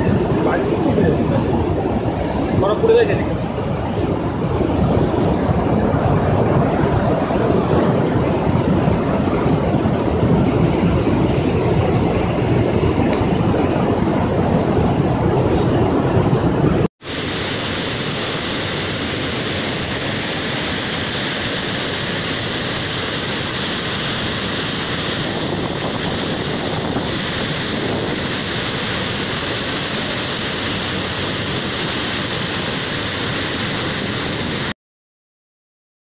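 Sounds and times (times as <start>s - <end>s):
floodwater rushing through spillway: 0.0s - 34.7s.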